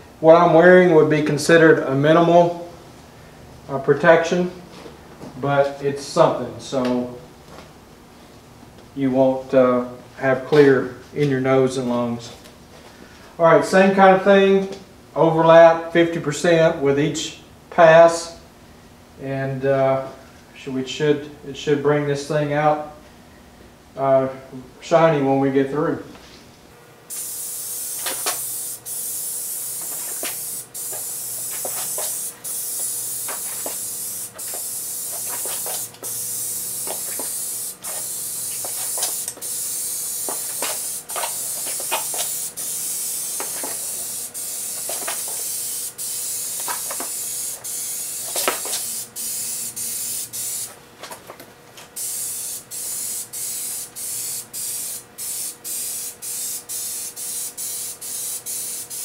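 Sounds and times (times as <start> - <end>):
aerosol can spraying: 27.1 - 50.8, 52.0 - 59.0.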